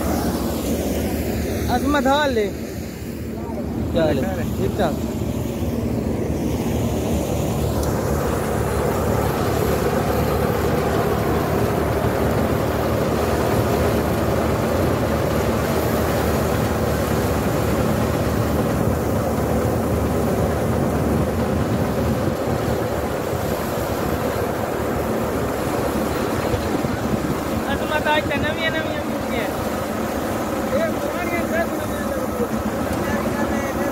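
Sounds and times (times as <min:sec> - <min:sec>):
threshing machine roaring: 0:00.0 - 0:33.9
tractor engine: 0:00.0 - 0:33.9.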